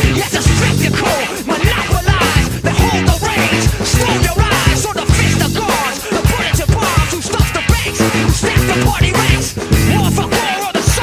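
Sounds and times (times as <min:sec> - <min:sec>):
music with strong bass beat: 0:00.0 - 0:11.0.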